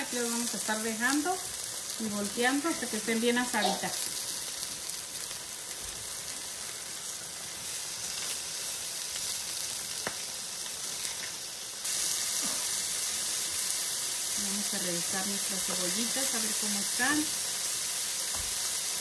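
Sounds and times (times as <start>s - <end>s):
cactus paddles sizzling on griddle: 0.0s - 19.0s.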